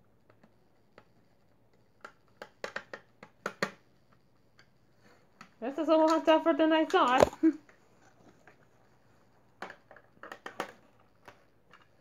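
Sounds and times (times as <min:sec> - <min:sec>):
small sharp clicks and taps: 0:01.7 - 0:04.7.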